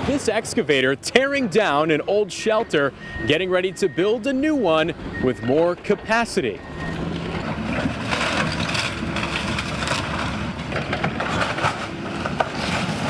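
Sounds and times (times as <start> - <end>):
excavator engine under load: 0.0 - 13.0
wood cracking and crunching: 7.0 - 13.0.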